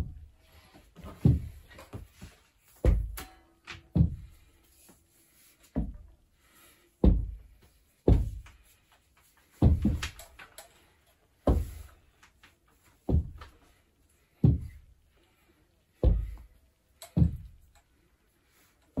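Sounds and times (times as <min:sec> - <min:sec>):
heavy dull thuds: 0:03.9 - 0:04.5, 0:07.0 - 0:08.5, 0:09.6 - 0:10.2, 0:11.4 - 0:11.9, 0:13.0 - 0:13.5, 0:14.4 - 0:14.9, 0:16.0 - 0:16.5, 0:17.1 - 0:17.7.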